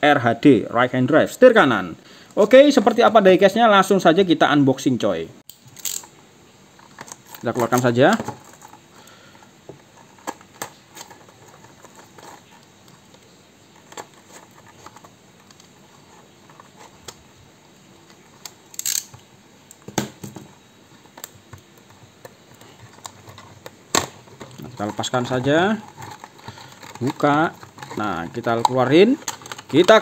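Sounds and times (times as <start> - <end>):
plastic wrap crinkling: 24.1 - 30.0.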